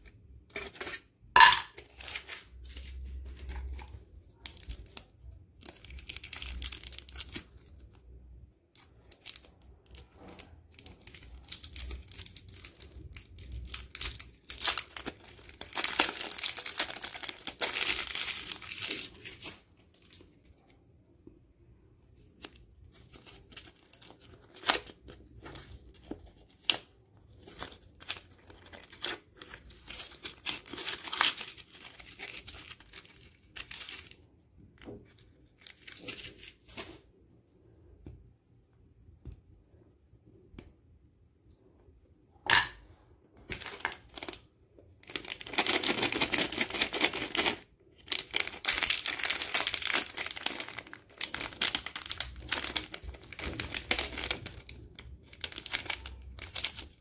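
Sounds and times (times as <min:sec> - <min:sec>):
wrappers crinkling and tearing: 0:01.9 - 0:08.1, 0:08.8 - 0:20.7, 0:22.2 - 0:34.2, 0:35.1 - 0:37.0, 0:43.5 - 0:57.0
foil being peeled: 0:45.1 - 0:54.7.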